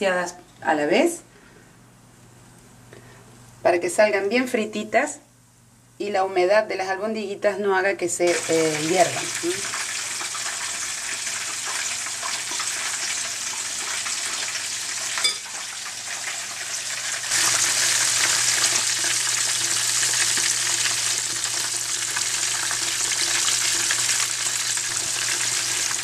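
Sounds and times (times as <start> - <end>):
meatballs deep-frying in oil: 8.3 - 26.0.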